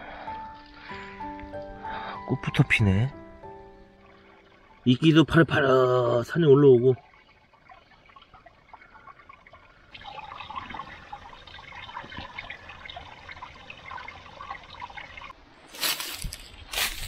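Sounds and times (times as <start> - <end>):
footstep crunching dry leaves: 15.6 - 17.0.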